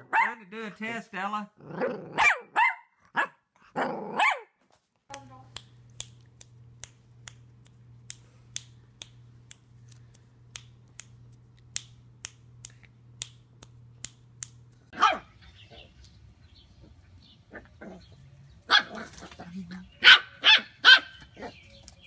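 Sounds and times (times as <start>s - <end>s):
puppy teeth snapping: 5.1s - 14.8s.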